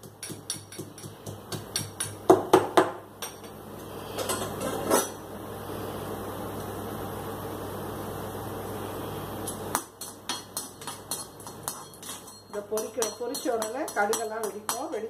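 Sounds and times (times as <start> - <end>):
metal pestle pounding in cup: 0.0 - 3.0, 9.8 - 15.0.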